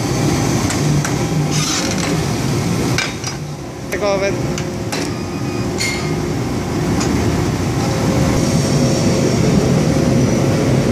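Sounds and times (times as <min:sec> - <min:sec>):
machinery low rumble: 0:02.2 - 0:10.9
sharp metal clack: 0:05.8 - 0:06.2.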